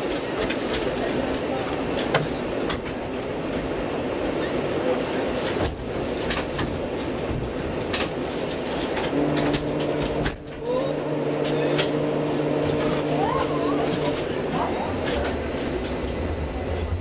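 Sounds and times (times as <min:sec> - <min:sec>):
tram wheels rumbling on track: 0:00.0 - 0:17.0
low hum: 0:09.2 - 0:17.0.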